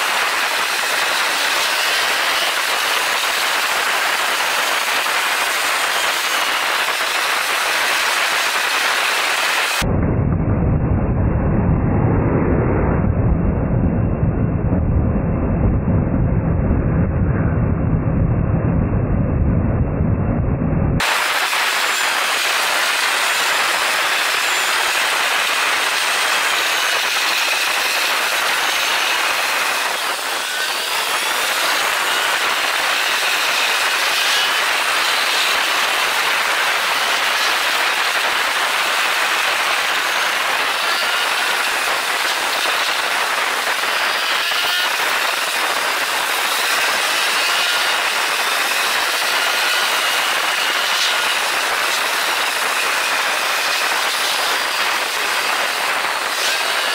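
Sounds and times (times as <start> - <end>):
wind and motorcycle road noise: 0.0 - 56.9.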